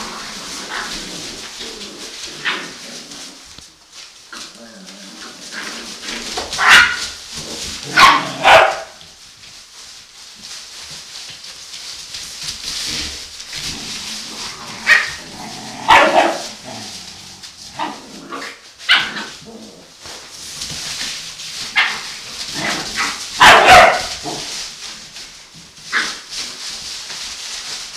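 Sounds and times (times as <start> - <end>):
puppies barking and yipping: 0.0 - 3.5, 5.4 - 9.0, 14.6 - 16.7, 17.6 - 19.5, 20.6 - 24.7
rustle of shredded newspaper: 0.0 - 27.9.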